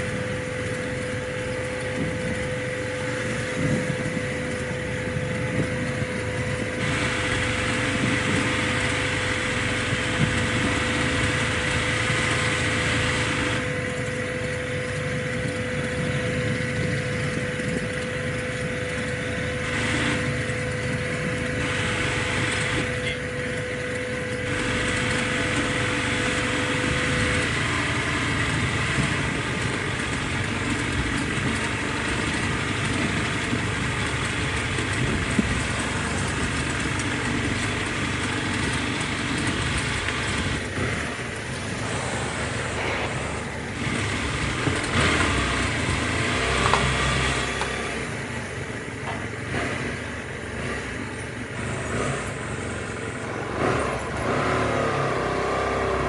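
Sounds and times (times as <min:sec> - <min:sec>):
motorcycle engine running: 0:00.0 - 0:56.0
wind noise on microphone: 0:01.6 - 0:11.3, 0:28.6 - 0:37.4.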